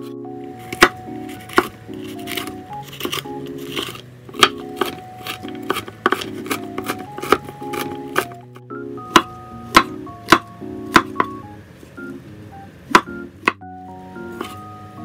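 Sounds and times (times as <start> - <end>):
gentle background music: 0.0 - 15.0
knife chopping on wooden board: 0.7 - 8.4, 9.1 - 11.4, 12.9 - 13.6.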